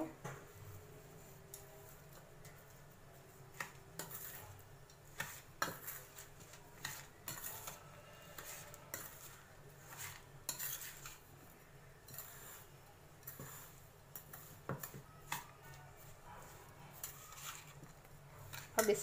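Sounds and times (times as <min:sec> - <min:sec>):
spoon scraping metal bowl: 0:03.5 - 0:19.0.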